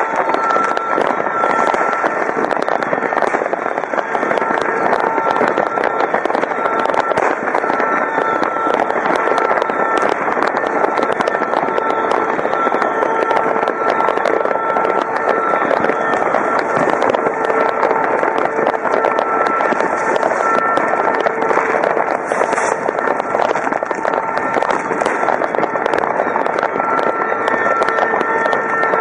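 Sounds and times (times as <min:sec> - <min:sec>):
fireworks bursting and crackling: 0:00.0 - 0:29.0.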